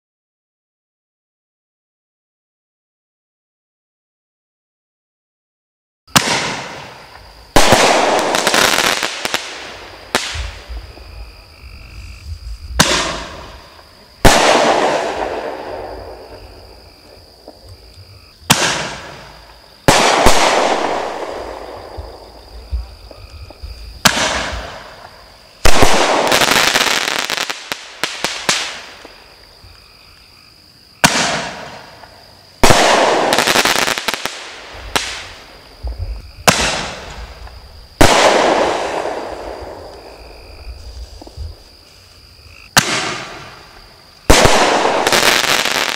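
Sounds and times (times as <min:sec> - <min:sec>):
firework crackling: 0:06.1 - 0:17.6, 0:18.5 - 0:29.4, 0:31.0 - 0:42.1, 0:42.7 - 0:45.9.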